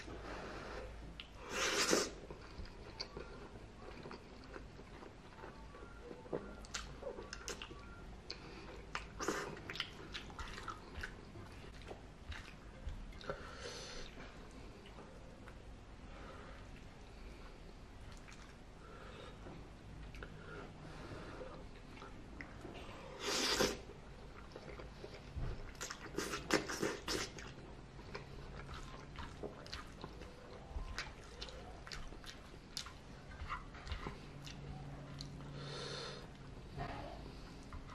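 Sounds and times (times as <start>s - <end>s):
wet chewing smacks: 6.4s - 13.4s, 23.4s - 35.4s
wet chewing clicks: 6.6s - 13.4s
slurping noodles: 23.2s - 23.8s.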